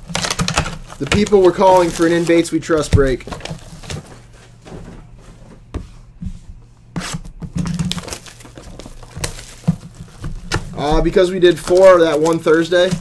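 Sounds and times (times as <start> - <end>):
foil packs crinkling: 0.0 - 4.4, 7.6 - 13.0.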